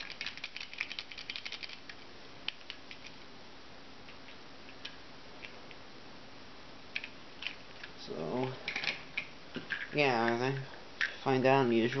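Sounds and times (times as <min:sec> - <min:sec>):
plastic toy clicks: 0:00.0 - 0:01.8
faint steady hum: 0:00.0 - 0:12.0.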